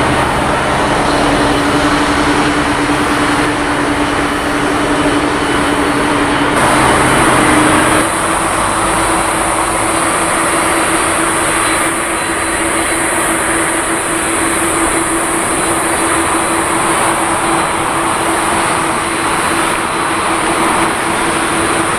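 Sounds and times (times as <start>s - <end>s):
jet engines roaring: 0.0s - 21.9s.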